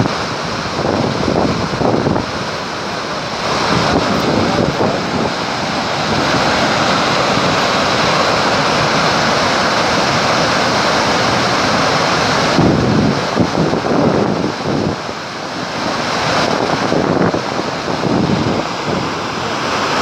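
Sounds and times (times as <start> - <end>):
wind buffeting microphone: 0.0 - 9.1, 11.2 - 19.3
floodwater roaring over a drop: 0.0 - 20.0.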